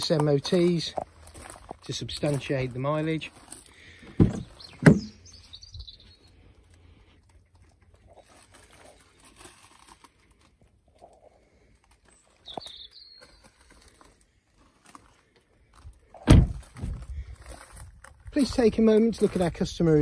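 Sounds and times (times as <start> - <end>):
bird chirp: 3.7 - 6.6, 12.0 - 14.0
car door shutting: 16.3 - 16.6.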